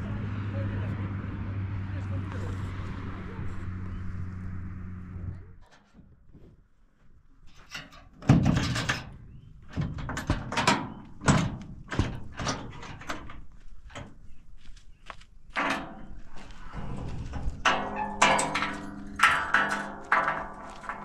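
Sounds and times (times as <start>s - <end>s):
items scraping metal truck bed: 7.5s - 14.2s, 15.6s - 21.0s
knocks on metal truck bed: 8.2s - 8.8s.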